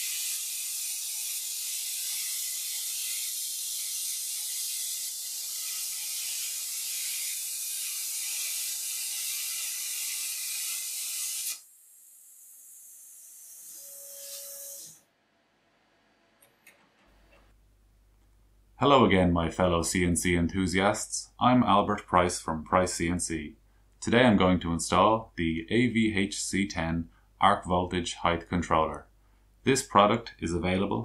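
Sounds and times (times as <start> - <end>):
brief steady tone: 13.8 - 14.8.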